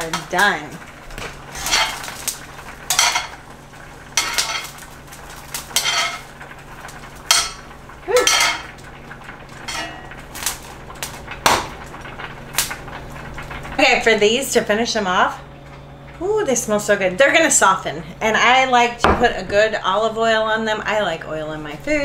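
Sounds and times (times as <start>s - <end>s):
metal utensil scraping a pan: 1.5s - 2.3s, 2.9s - 3.4s, 4.2s - 4.8s, 5.7s - 6.3s, 8.2s - 8.7s, 9.6s - 10.2s.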